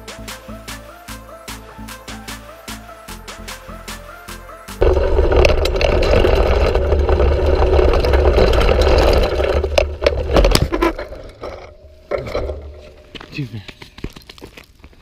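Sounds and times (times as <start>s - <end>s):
tyres on dirt trail: 4.7s - 15.0s
bike crash clatter: 4.8s - 13.3s.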